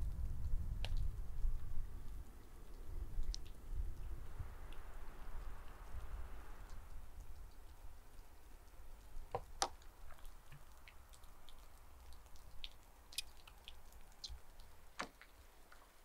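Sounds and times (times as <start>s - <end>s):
wet squishing of meat: 9.8s - 16.0s.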